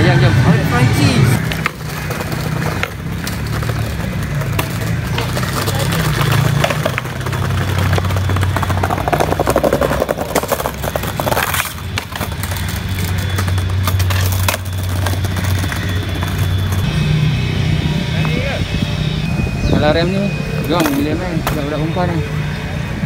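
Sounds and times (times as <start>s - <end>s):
skateboard wheels rolling over bricks: 1.4s - 16.9s.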